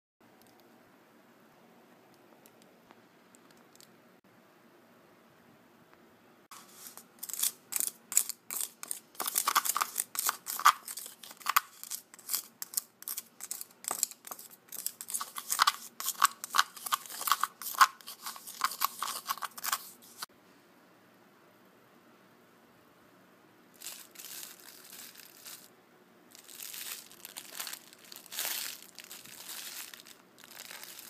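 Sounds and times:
spoon stirring sugar in cup: 6.5s - 20.3s.

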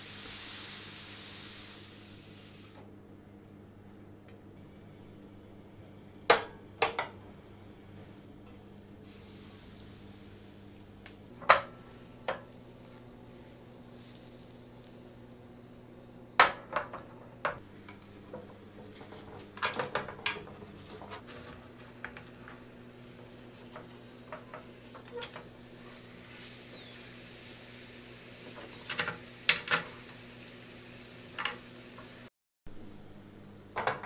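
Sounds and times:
low steady hum: 1.9s - 28.7s, 32.7s - 34.0s
utensils tapping a pan: 11.4s - 12.6s, 16.4s - 22.7s, 23.6s - 25.5s, 28.4s - 30.2s, 31.3s - 32.1s.

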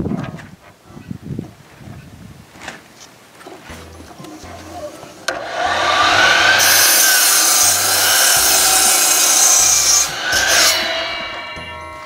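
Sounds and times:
miter saw cutting wood: 5.2s - 12.0s.

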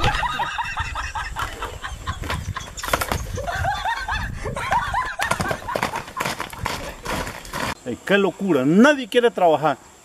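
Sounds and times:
hoofbeats galloping: 4.5s - 7.8s.

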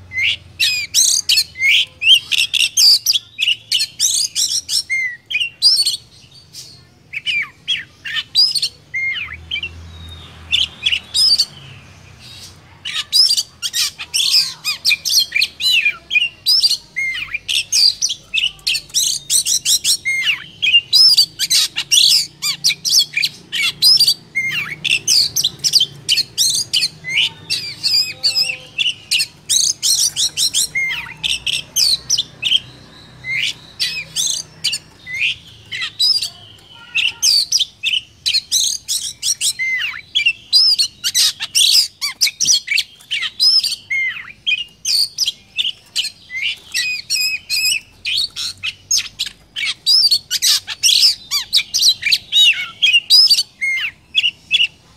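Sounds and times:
bird whistles and chirps: 12.4s - 54.8s.

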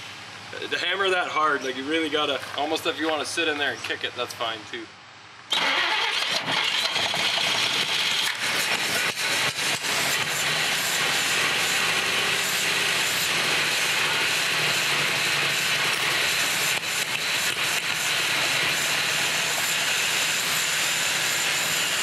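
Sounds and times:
car engine starting and running: 5.5s - 20.0s.

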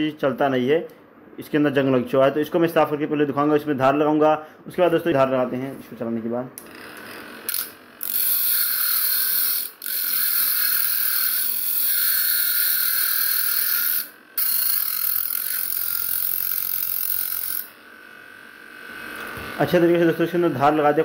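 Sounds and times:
grinder disc grinding metal: 6.6s - 21.0s.

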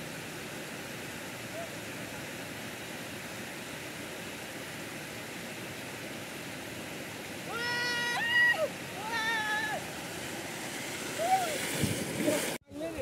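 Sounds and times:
water rushing down spillway: 0.0s - 13.0s
person whooping: 7.5s - 9.8s, 11.2s - 11.6s.

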